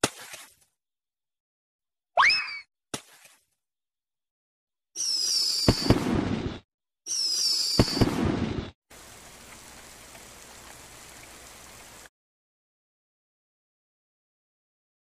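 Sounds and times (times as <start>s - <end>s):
falling whistle with crackling pops: 5.0s - 6.2s, 7.1s - 8.3s.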